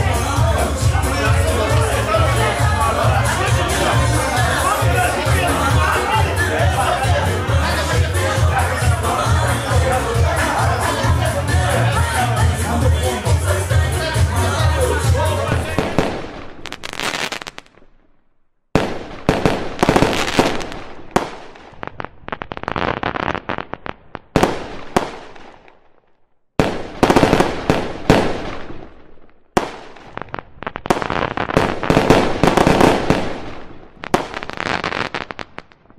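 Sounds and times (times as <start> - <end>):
fireworks crackling and popping: 15.4 - 35.9.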